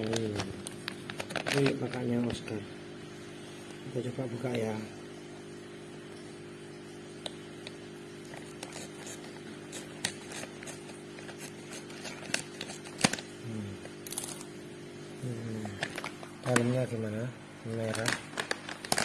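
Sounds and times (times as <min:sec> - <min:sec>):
plastic bag crinkling: 0:00.0 - 0:02.5, 0:08.1 - 0:14.6, 0:15.5 - 0:17.0, 0:17.7 - 0:19.0.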